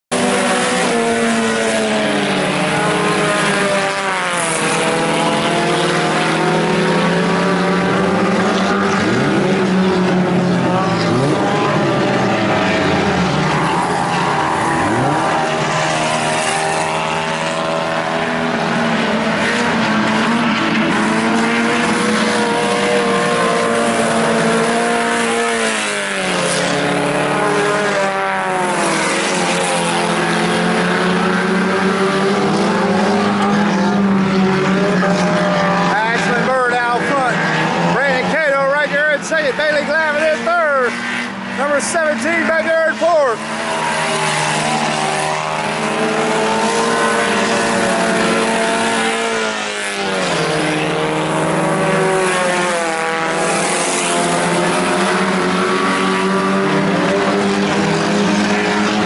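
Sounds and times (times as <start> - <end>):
race car engines: 0.1 - 59.0.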